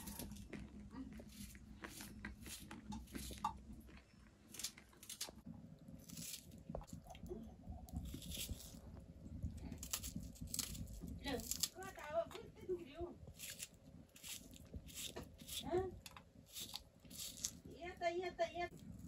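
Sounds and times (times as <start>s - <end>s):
knife crunching through onion: 0.0s - 0.6s, 1.2s - 3.8s, 4.5s - 5.4s, 6.0s - 7.1s, 7.9s - 8.9s, 9.7s - 11.8s, 13.3s - 15.8s, 16.4s - 17.7s.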